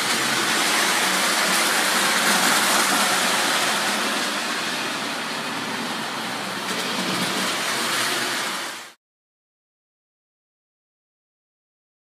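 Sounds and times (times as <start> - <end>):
model train running on track: 0.0 - 9.0.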